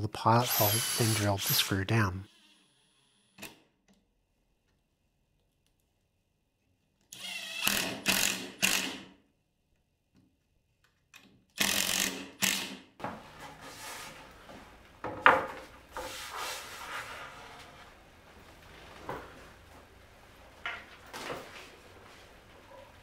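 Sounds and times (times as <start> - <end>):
shuffling: 15.9 - 23.0.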